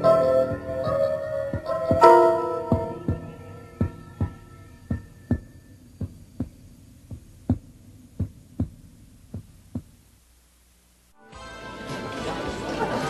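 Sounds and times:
heartbeat-like low thumps: 0:00.5 - 0:10.0.

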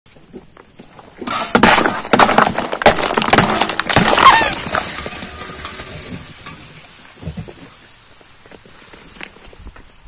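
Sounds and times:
balloons popping under car tyre: 0:01.2 - 0:06.6.

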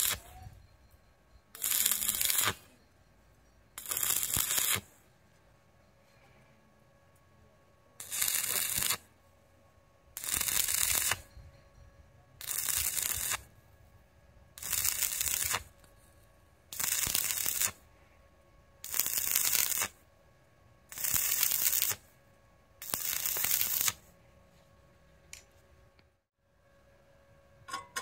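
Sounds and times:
welding arc crackling and hissing: 0:00.0 - 0:00.2, 0:01.6 - 0:02.6, 0:03.8 - 0:04.9, 0:08.0 - 0:09.0, 0:10.2 - 0:11.3, 0:12.4 - 0:13.5, 0:14.6 - 0:15.7, 0:16.7 - 0:17.8, 0:18.8 - 0:20.0, 0:20.9 - 0:22.1, 0:22.8 - 0:24.1.

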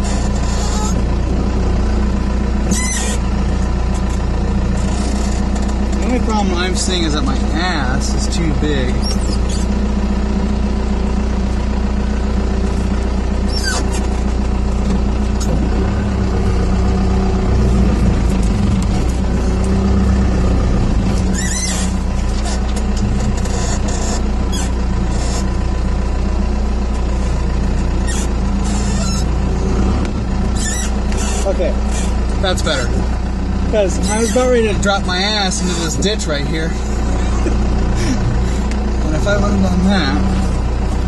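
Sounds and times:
high squeaks or scrapes: 0:00.0 - 0:01.0, 0:02.7 - 0:03.3, 0:04.7 - 0:05.7, 0:09.0 - 0:09.8, 0:13.4 - 0:14.2, 0:21.1 - 0:25.6, 0:28.0 - 0:29.4, 0:30.5 - 0:32.2, 0:33.9 - 0:34.8
diesel engine running: 0:00.0 - 0:41.0.

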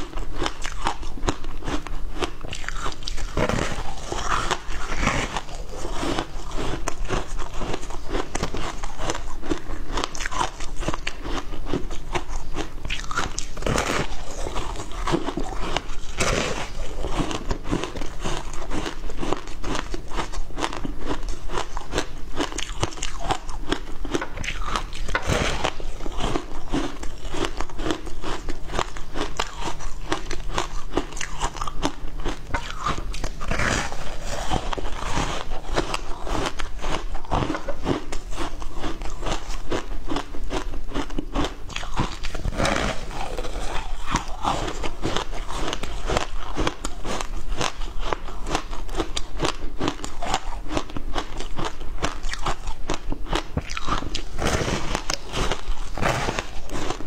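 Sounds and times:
person crunching ice: 0:00.0 - 0:57.0.

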